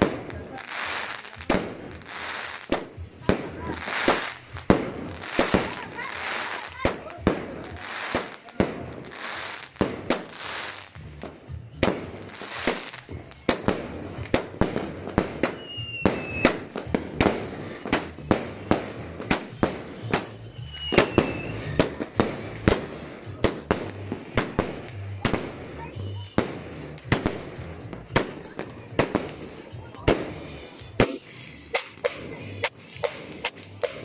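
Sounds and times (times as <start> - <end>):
hissing crackle: 0.0 - 25.8
fireworks bangs: 0.0 - 34.0.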